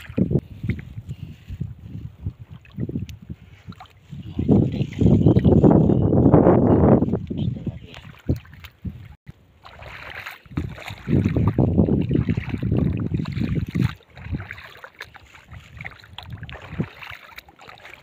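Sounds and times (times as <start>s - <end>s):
wind on microphone: 0.0s - 17.2s
water splashing and lapping: 0.0s - 18.0s.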